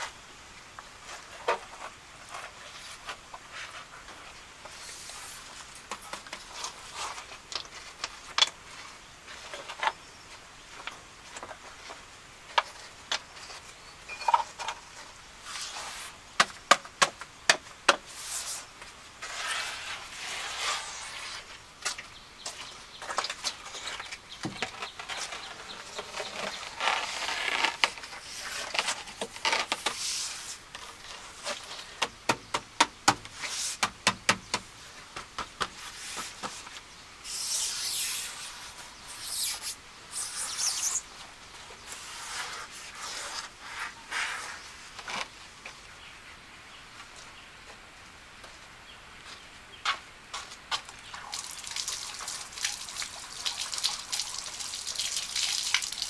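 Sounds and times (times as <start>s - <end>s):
tools scraping: 19.2s - 21.5s, 35.8s - 41.0s.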